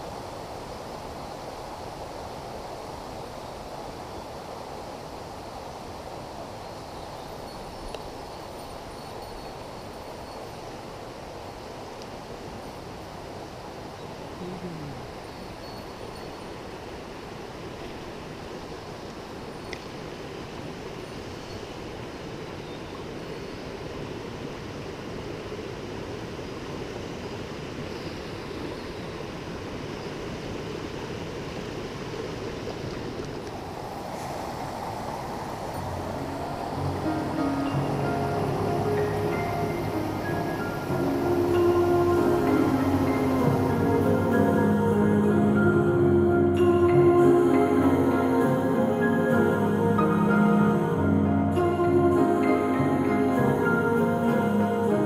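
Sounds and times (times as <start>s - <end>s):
stream rushing over boulders: 0.0s - 55.0s
faint click: 19.7s - 19.9s.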